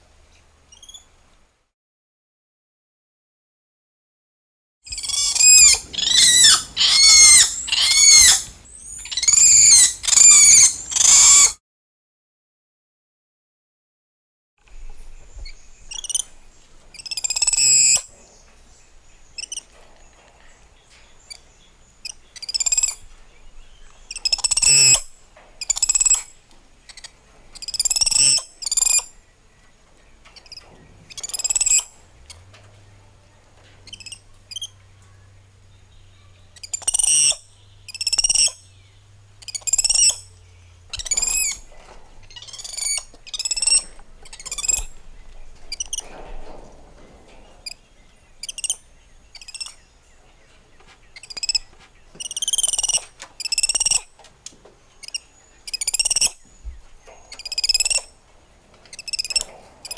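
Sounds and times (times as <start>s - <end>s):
monkeys squealing and chirping: 4.9s - 11.6s, 16.9s - 18.0s, 24.2s - 26.2s, 26.9s - 29.0s, 31.2s - 31.9s, 36.6s - 38.6s, 39.4s - 40.3s, 40.9s - 41.6s, 42.3s - 44.9s, 48.4s - 49.8s, 51.2s - 51.6s, 52.2s - 54.1s, 55.0s - 56.4s, 57.4s - 58.1s, 58.9s - 59.9s.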